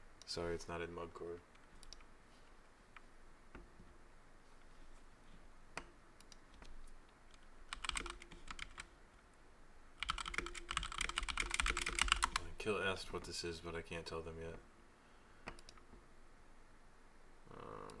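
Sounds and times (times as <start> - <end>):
typing on a computer keyboard: 7.7 - 8.9, 10.0 - 12.5.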